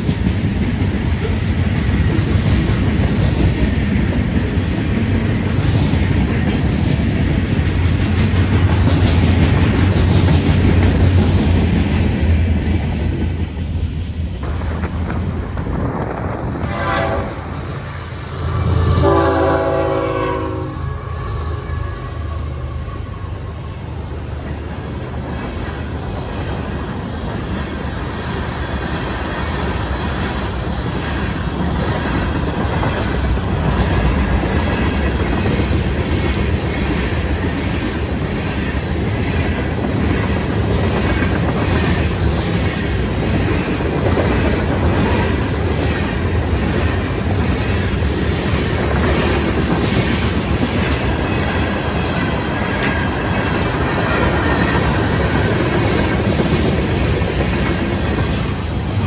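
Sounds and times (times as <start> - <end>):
wheels clacking over rail joints: 0.0 - 15.8
freight train rumbling past: 0.0 - 59.0
locomotive horn blast: 16.6 - 17.6, 18.5 - 23.1.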